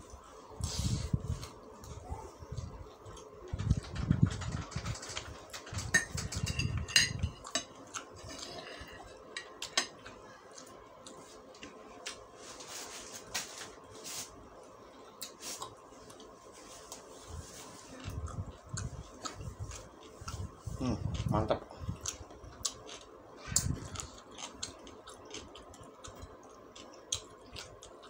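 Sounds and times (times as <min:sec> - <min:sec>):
cutlery clinking on ceramic plate: 0:05.9 - 0:07.7.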